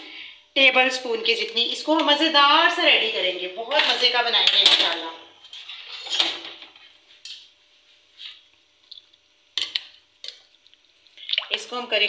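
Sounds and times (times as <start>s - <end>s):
utensils clinking against dish: 3.7s - 7.5s.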